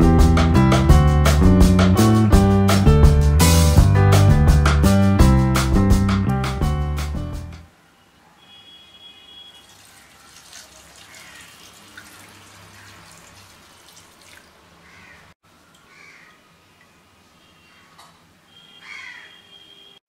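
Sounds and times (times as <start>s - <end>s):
water pouring and draining through strainer: 9.6s - 14.8s.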